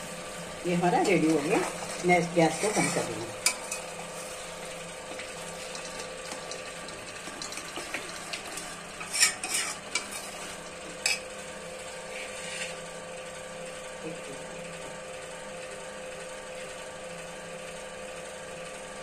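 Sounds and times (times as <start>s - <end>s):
ladle scraping metal pan: 1.1s - 3.8s, 9.0s - 10.4s.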